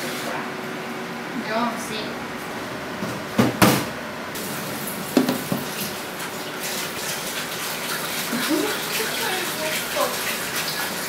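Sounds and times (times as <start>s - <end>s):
knocks and clunks in kitchen: 2.9s - 4.0s, 5.1s - 5.9s.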